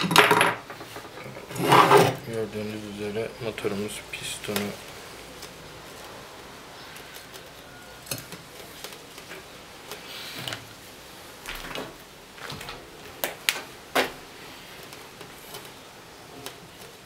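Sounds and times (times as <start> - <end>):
metallic clicks and knocks: 0.0 - 2.1.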